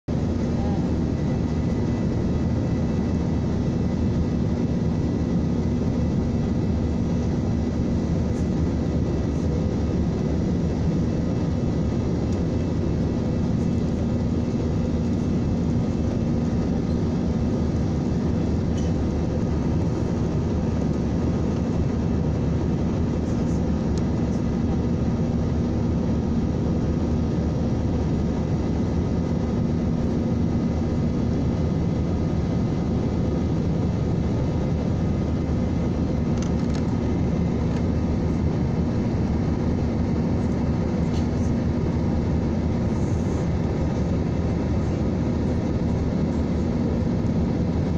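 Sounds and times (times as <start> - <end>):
jet engine and airflow roar: 0.0 - 47.9.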